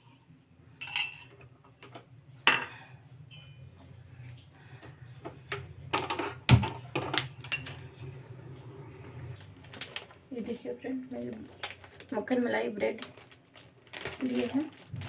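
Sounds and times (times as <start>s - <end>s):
steady low hum: 0.0s - 12.0s
steel kitchen utensils clinking: 0.8s - 1.9s, 7.1s - 7.9s.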